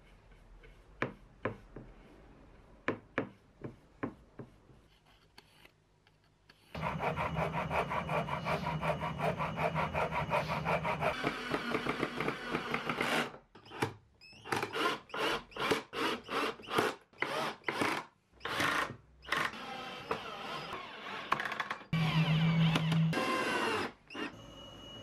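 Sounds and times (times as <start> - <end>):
hand saw cutting wood: 6.8 - 13.2.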